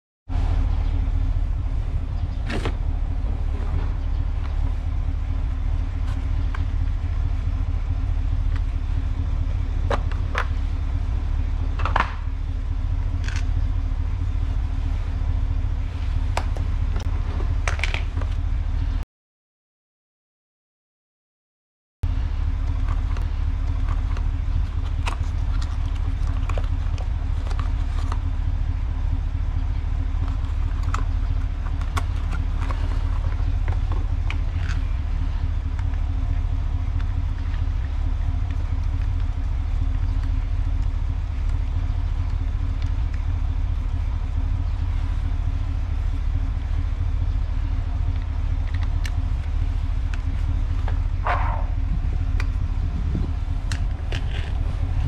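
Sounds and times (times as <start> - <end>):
low rumble with hum: 0.3 - 19.0, 22.0 - 55.0.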